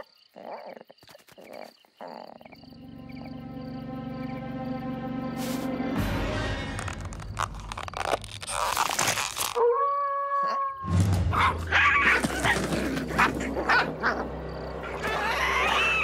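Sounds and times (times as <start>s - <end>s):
cartoon howl-like cry: 14.8s - 16.0s.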